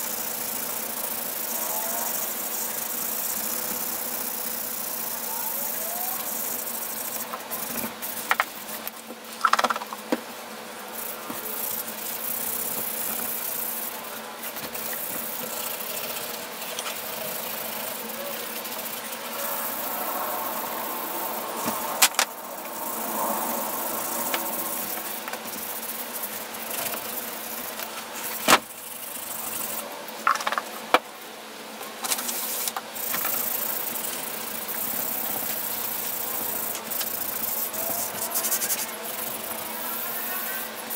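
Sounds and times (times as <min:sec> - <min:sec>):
abrasive pad scrubbing metal: 0:14.6 - 0:28.4.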